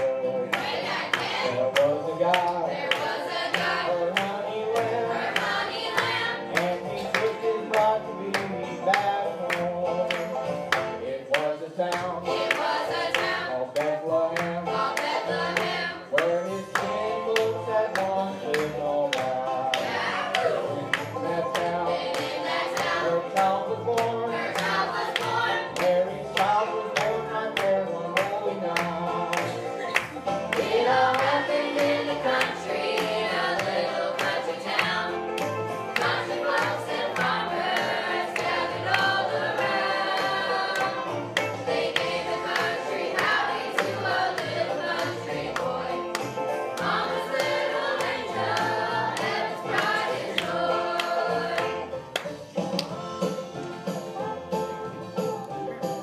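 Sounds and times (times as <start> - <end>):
children singing together: 0.0 - 1.6, 2.6 - 4.2, 4.8 - 7.2, 12.3 - 13.5, 14.7 - 16.1, 21.8 - 23.3, 24.3 - 25.8, 30.5 - 35.3, 35.9 - 46.2, 46.8 - 51.9
music accompaniment with steady beat: 0.0 - 56.0.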